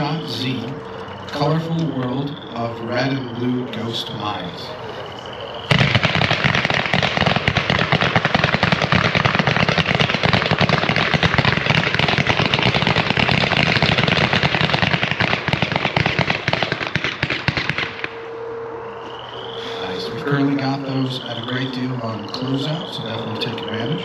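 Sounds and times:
fireworks volley of sharp shots: 0:05.6 - 0:18.2.

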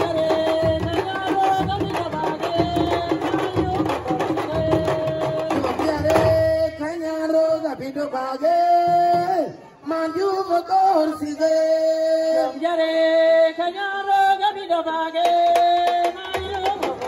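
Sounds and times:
woman singing: 0:00.0 - 0:06.5, 0:12.2 - 0:17.0
fast hand drumming: 0:00.0 - 0:06.6, 0:15.2 - 0:17.0.

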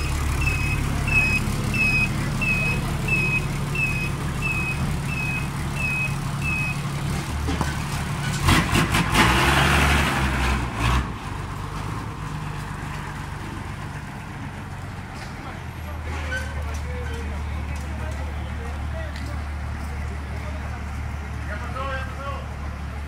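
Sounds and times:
truck reversing alarm beeping: 0:00.0 - 0:07.0
truck engine running: 0:00.0 - 0:23.0.

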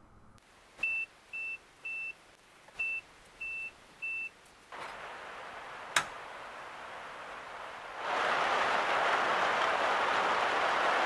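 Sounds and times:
steady hiss: 0:00.4 - 0:11.0.

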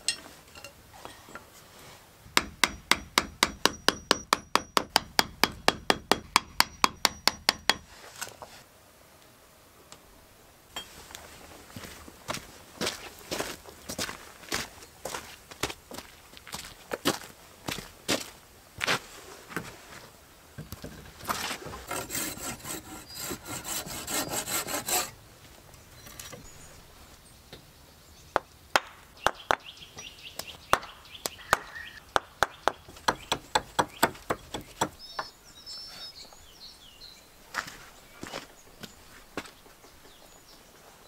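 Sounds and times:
blade rasping on wood: 0:21.8 - 0:25.2.

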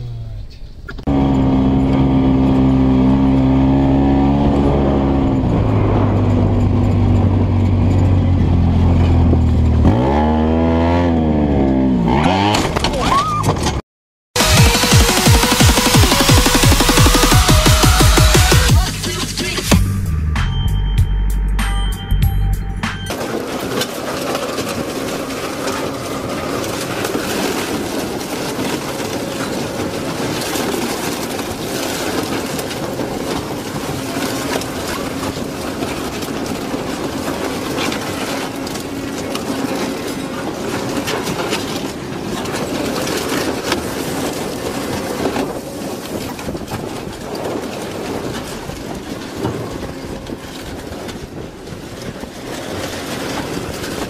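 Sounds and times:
shredder machine hum: 0:01.0 - 0:07.4, 0:14.4 - 0:19.8.

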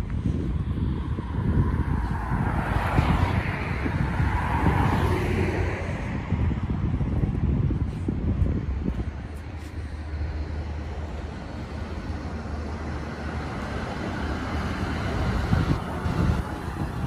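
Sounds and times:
road traffic rumble: 0:00.0 - 0:17.0
wind buffeting microphone: 0:00.0 - 0:17.0
vehicle passing: 0:00.1 - 0:17.0.

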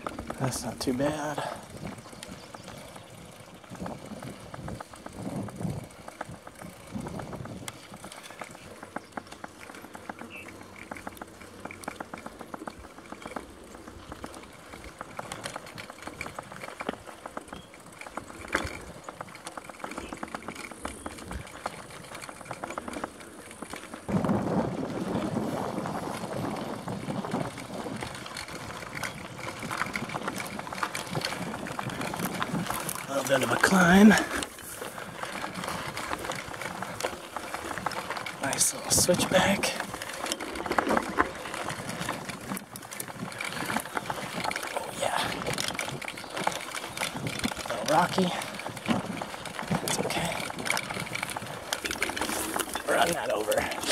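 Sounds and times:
bike clicking and rattling: 0:00.0 - 0:53.9
bike tyres on dirt trail: 0:00.0 - 0:53.9.

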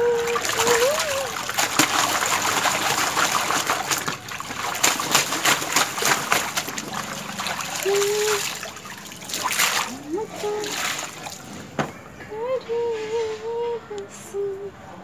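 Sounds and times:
water trickling and dripping: 0:00.0 - 0:11.7
towel splashing in water: 0:00.0 - 0:12.0.

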